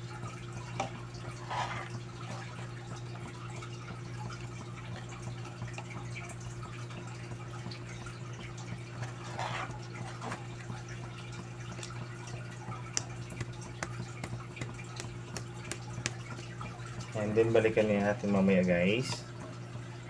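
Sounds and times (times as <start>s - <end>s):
ladle stirring thick porridge: 0.7s - 3.4s, 8.8s - 10.8s.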